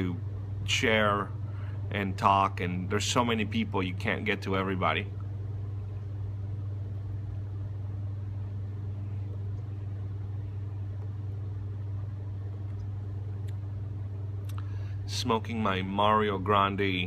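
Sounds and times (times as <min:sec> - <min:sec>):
hvac equipment humming: 0:00.0 - 0:17.0.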